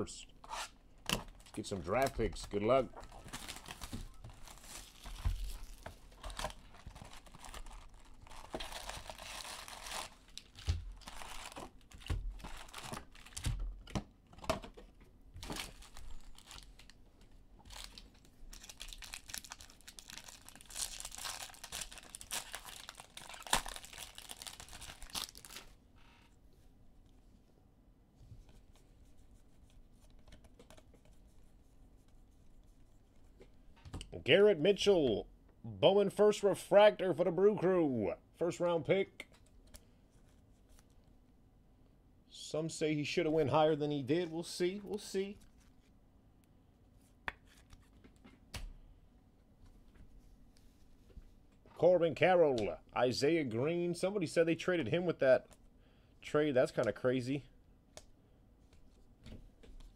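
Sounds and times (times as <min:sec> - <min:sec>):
wrappers crinkling and rustling: 0:01.2 - 0:13.6, 0:15.4 - 0:17.0, 0:17.6 - 0:25.8.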